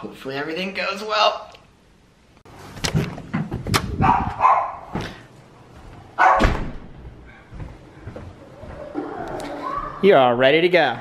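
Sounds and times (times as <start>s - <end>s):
dogs barking: 4.0s - 5.0s, 6.2s - 6.5s.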